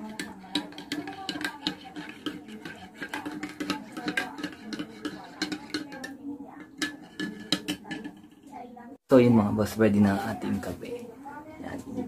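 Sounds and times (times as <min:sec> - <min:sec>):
spoon clinking in ceramic mug: 0:00.0 - 0:08.4.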